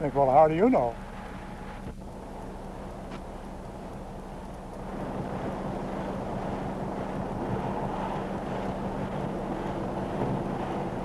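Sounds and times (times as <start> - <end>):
constant low hum: 0.0 - 11.0
wind noise on microphone: 1.0 - 11.0.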